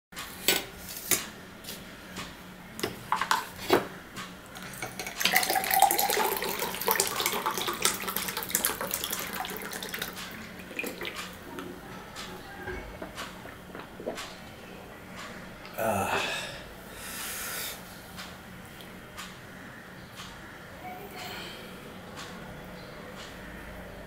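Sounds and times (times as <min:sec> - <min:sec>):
water pouring into glass: 0:04.7 - 0:11.7.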